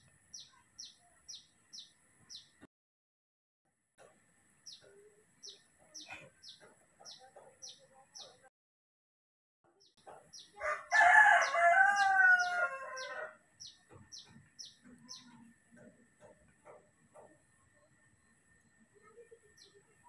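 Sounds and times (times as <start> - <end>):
small bird chirping: 0.0 - 2.7, 4.6 - 8.5, 9.7 - 10.6, 11.3 - 20.0
rooster crowing: 10.6 - 13.4.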